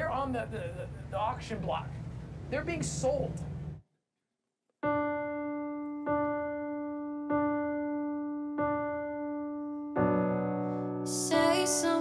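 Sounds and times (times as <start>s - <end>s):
piano chord ringing: 4.8s - 12.0s.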